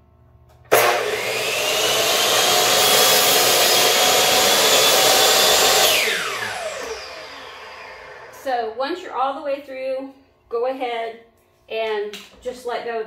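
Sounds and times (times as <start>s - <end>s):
miter saw cutting wood: 0.7s - 8.5s.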